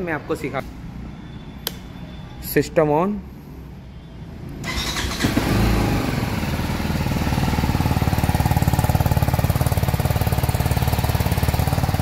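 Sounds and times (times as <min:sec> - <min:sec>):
motorcycle engine idling fast: 0:05.1 - 0:12.0.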